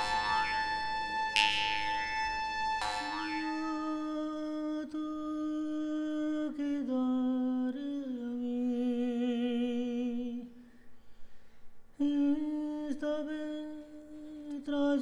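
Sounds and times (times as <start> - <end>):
sustained instrumental tone: 0.0 - 4.3
person humming long notes: 2.8 - 5.0.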